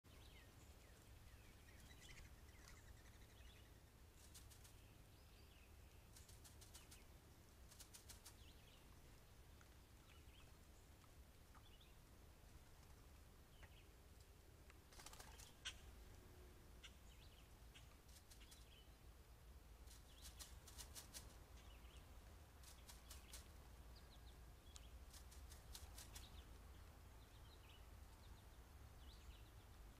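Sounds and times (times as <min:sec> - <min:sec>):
faint bird chirps: 0:00.1 - 0:07.1, 0:15.0 - 0:16.0
bird wings flapping: 0:07.7 - 0:08.4, 0:14.9 - 0:15.6, 0:19.9 - 0:21.4, 0:25.1 - 0:26.3.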